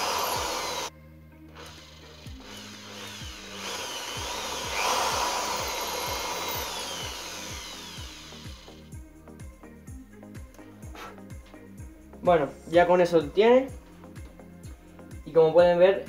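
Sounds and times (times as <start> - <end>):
electric drill boring into wood: 0.0 - 0.9, 1.5 - 8.9
background music with steady beat: 0.0 - 16.0.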